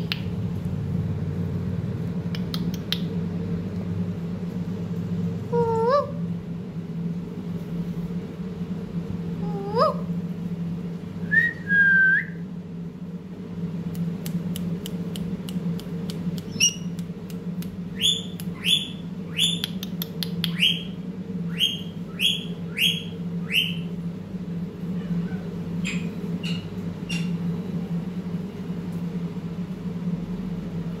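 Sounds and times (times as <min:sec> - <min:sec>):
steady low hum: 0:00.0 - 0:31.0
parakeet clicks: 0:02.3 - 0:03.2, 0:13.9 - 0:20.8
parakeet sharp chirps: 0:16.4 - 0:17.0, 0:17.9 - 0:23.9, 0:25.8 - 0:27.4.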